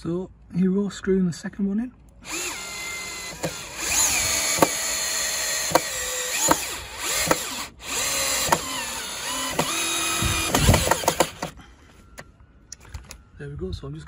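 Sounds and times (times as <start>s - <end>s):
cordless drill motor whining: 2.2s - 11.6s
sharp clicks: 5.7s - 11.6s.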